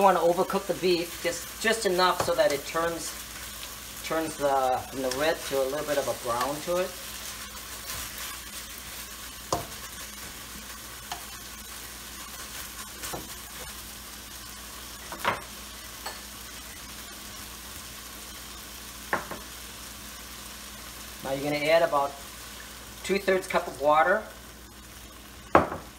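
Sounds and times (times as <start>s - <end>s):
meat sizzling in a wok: 0.0s - 25.9s.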